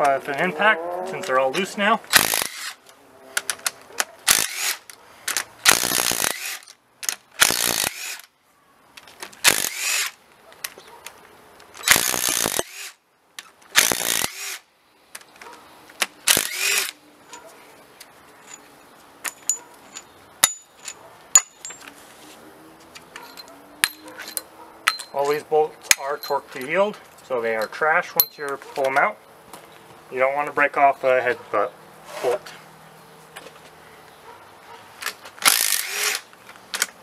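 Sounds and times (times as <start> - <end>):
impact wrench bursts: 2.1 - 2.8, 4.3 - 4.9, 5.6 - 6.7, 7.4 - 8.3, 9.4 - 10.2, 11.8 - 13.0, 13.8 - 14.6, 16.2 - 17.0, 35.4 - 36.3
metal bolts clinking: 18.4 - 22.0, 23.0 - 29.1.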